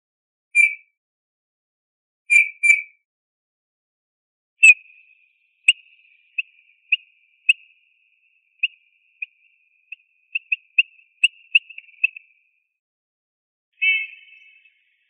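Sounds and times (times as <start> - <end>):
bird piping notes: 4.6 - 12.6, 13.8 - 15.0
faint steady tone: 4.6 - 12.8.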